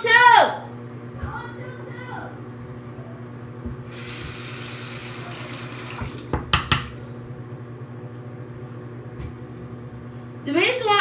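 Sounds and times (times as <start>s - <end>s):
steady low hum: 0.0s - 11.0s
sink tap running: 3.9s - 7.0s
hard objects knocking on sink: 6.0s - 7.0s.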